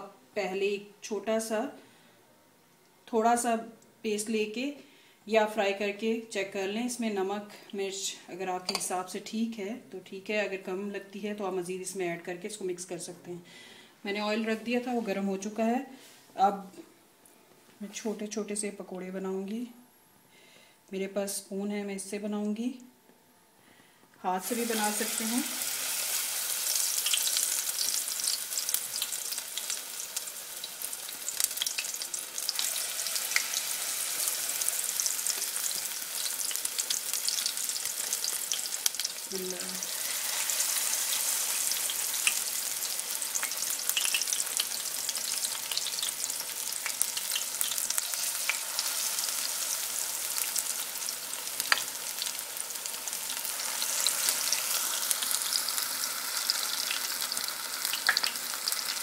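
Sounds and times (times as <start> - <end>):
batter sizzling in hot oil: 24.4 - 59.0.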